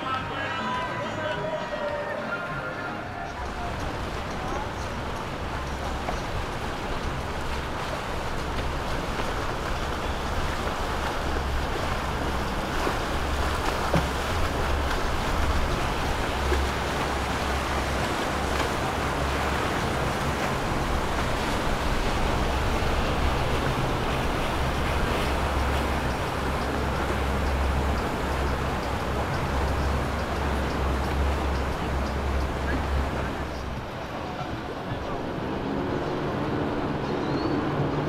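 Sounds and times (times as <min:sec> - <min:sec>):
motorboat engine running: 0:00.0 - 0:38.0
rush of water from boat wake: 0:00.0 - 0:38.0.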